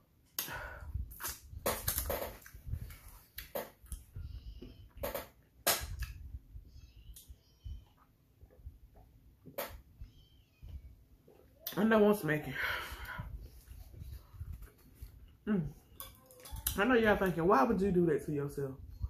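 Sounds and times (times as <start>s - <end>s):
person eating with noisy breaths: 0.3s - 1.6s.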